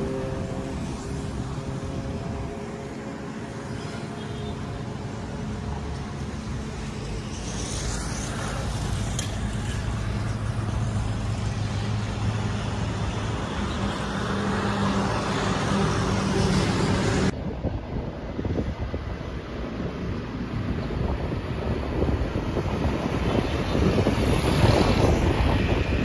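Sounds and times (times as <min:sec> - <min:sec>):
wind buffeting microphone: 0:16.1 - 0:26.0.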